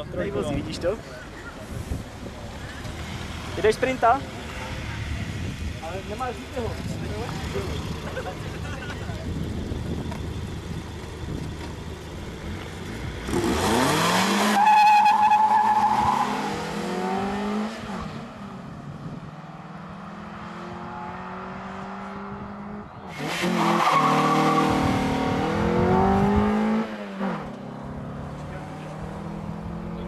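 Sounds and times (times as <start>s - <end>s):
car engines revving: 0.0s - 30.0s.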